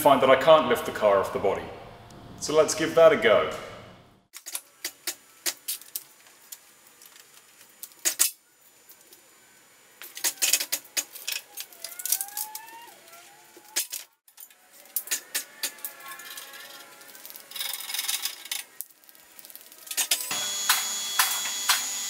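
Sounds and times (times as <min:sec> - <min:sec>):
wavering squeak: 0:11.2 - 0:13.9.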